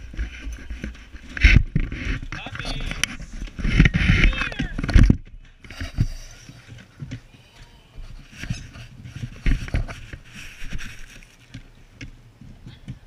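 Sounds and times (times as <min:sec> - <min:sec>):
bumps and knocks against camera: 0:00.0 - 0:07.4.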